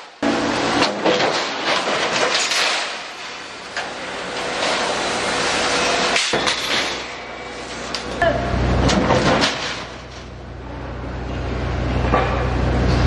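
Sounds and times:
steady machine hum: 0.0s - 13.0s
metal clattering: 8.8s - 10.3s.

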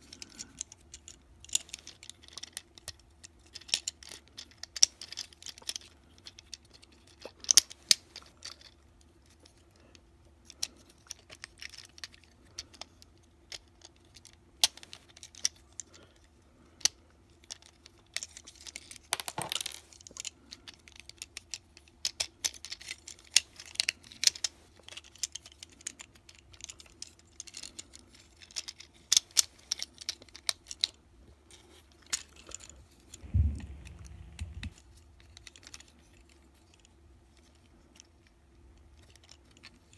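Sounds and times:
dull low bump: 33.2s - 34.8s.

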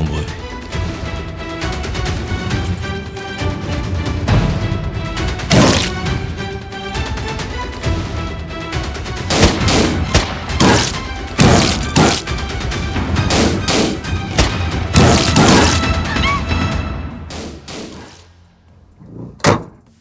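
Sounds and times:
action film music: 0.0s - 18.9s
gunshots: 5.5s - 6.1s, 9.3s - 12.4s, 13.2s - 16.0s.

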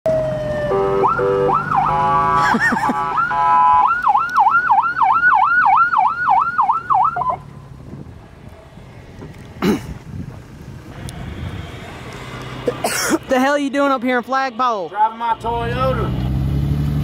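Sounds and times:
electronic police siren: 0.1s - 7.4s.

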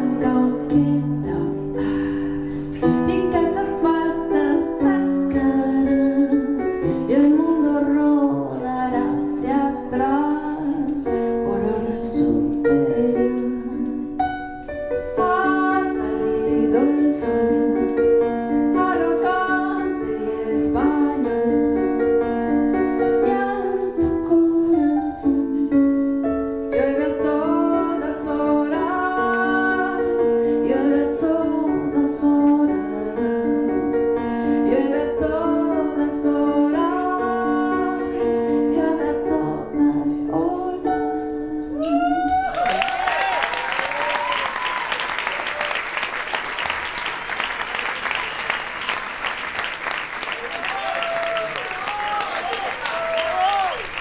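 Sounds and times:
woman singing: 0.0s - 14.2s, 15.0s - 22.3s, 22.9s - 42.6s.

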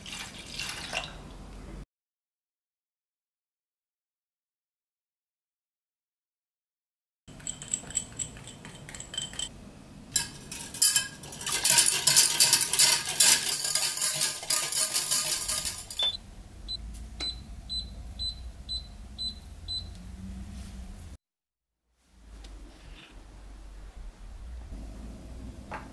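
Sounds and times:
ringing metallic clinks: 7.3s - 9.5s
whisk clattering in metal pot: 7.3s - 9.5s, 10.2s - 16.2s
hob touch control beeps: 16.0s - 19.9s.

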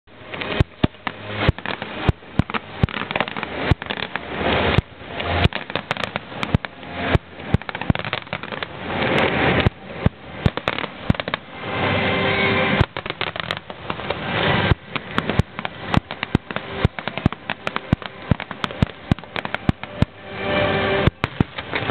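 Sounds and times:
fireworks bursting: 0.1s - 21.9s.

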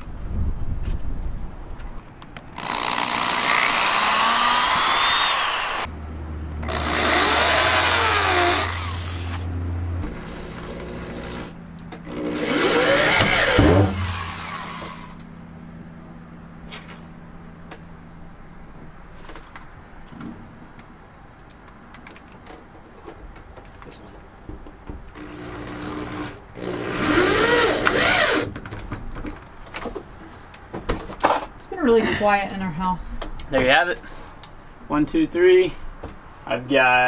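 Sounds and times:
power drill boring into wood: 2.6s - 5.9s, 6.6s - 11.5s, 12.1s - 15.2s, 25.2s - 28.5s
low steady hum: 5.7s - 21.8s.

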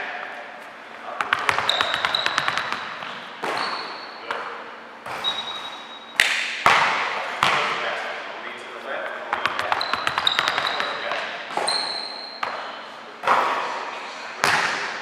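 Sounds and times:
basketball bouncing on gym floor: 1.2s - 5.3s, 6.2s - 7.8s, 9.3s - 11.8s, 12.4s - 13.5s, 14.4s - 14.9s
sneaker squeaks: 1.2s - 6.5s, 9.4s - 13.7s.

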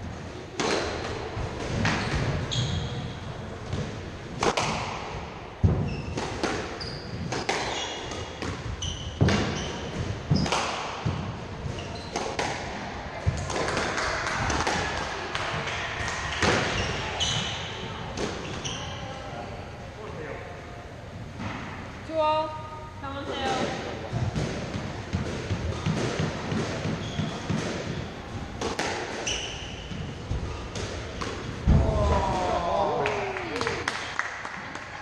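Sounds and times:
shoes squeaking on wooden floor: 1.9s - 3.2s, 5.6s - 10.6s, 11.6s - 12.3s, 16.7s - 17.8s, 26.7s - 28.1s, 29.2s - 30.6s
squash ball cracking off walls: 30.7s - 34.1s.

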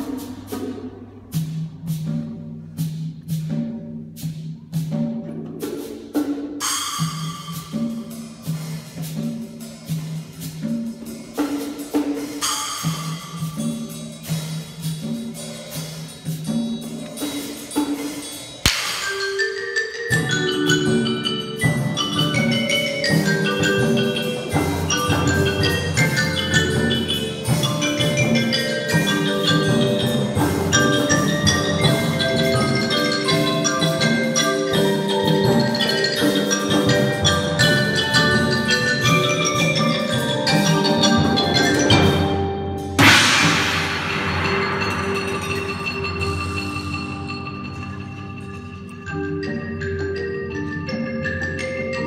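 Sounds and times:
timpani: 0.0s - 48.7s
marimba notes: 0.0s - 52.0s
vibraphone notes: 0.0s - 52.0s
loud crash: 43.0s - 46.2s.

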